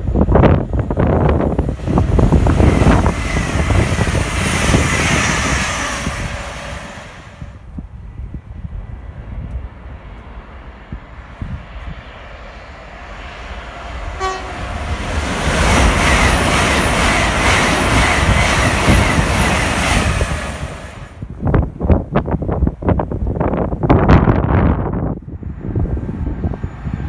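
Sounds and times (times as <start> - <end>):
train passing at speed: 0.0 - 27.0
train horn note: 14.2 - 14.8.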